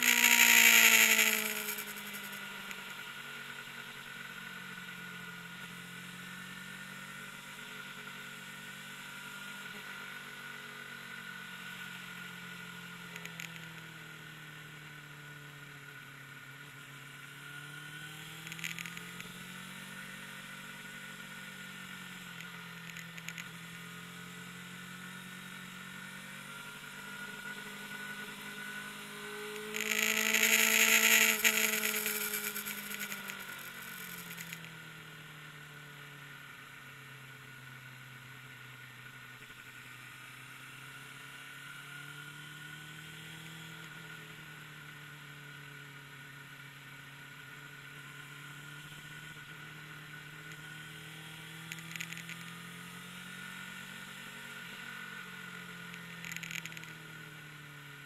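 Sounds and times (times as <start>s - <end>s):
loud rush of engine noise: 0.0s - 4.1s, 26.5s - 34.7s
motorcycle engine running: 0.0s - 58.0s.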